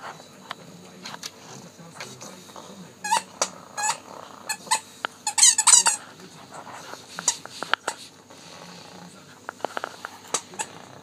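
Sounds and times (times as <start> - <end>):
squeaky toy squeaking: 3.0 - 6.0.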